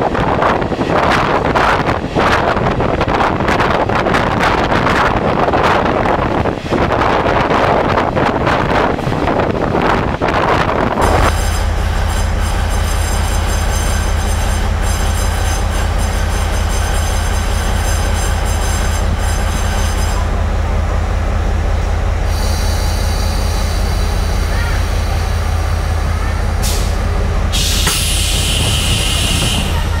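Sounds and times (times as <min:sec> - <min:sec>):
wind rushing at train window: 0:00.0 - 0:30.0
locomotive idling hum and whine: 0:11.0 - 0:30.0.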